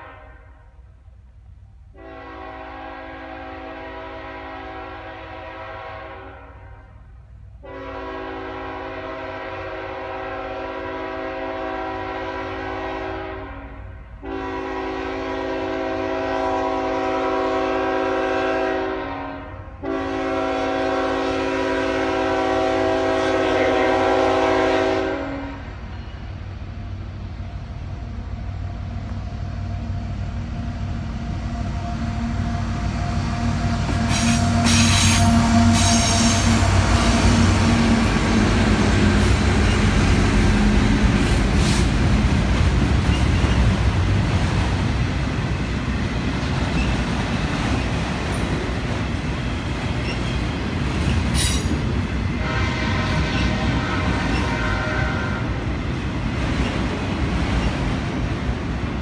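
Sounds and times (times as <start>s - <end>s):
locomotive horn: 0.0s - 0.9s, 1.9s - 25.9s, 31.3s - 41.9s, 51.4s - 55.7s
locomotive engine rumble: 25.7s - 54.8s
freight cars rolling rumble: 26.4s - 52.5s.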